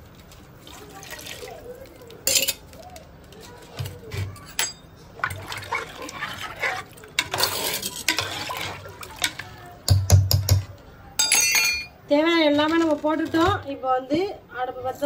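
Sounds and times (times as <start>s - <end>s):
liquid sloshing in pot: 5.1s - 9.8s.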